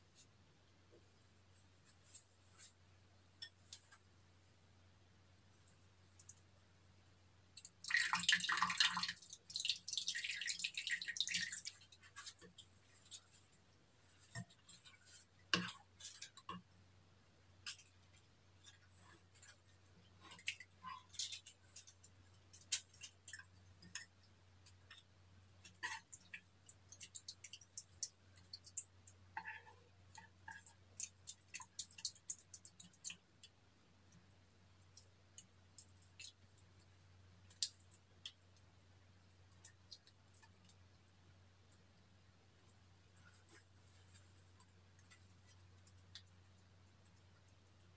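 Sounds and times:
slime being stirred: 0:07.6 - 0:16.8, 0:17.5 - 0:33.6.

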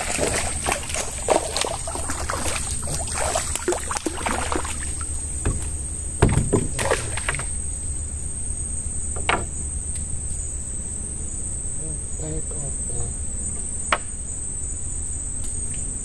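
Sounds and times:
fish splashing in water: 0:00.0 - 0:05.6, 0:06.2 - 0:07.6
high insect drone: 0:00.0 - 0:16.0
knocks against wooden boat: 0:05.4 - 0:07.5, 0:09.2 - 0:09.5.

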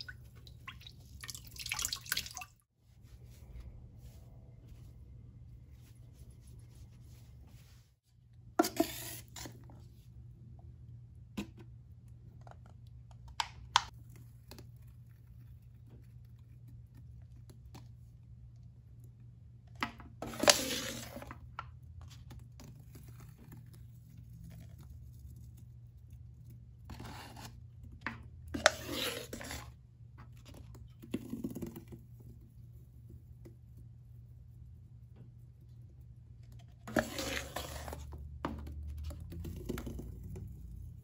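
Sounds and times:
cup scraping paste in metal tub: 0:08.6 - 0:09.6, 0:20.2 - 0:21.3, 0:28.5 - 0:29.8, 0:36.8 - 0:38.2.

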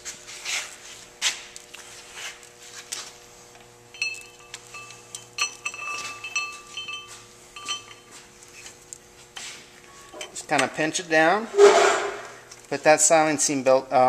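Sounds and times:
metal clinks: 0:03.8 - 0:08.3.

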